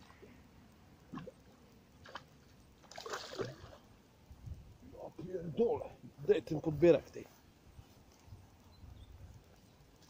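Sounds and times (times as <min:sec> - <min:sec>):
fish splashing in water: 0:01.1 - 0:03.8.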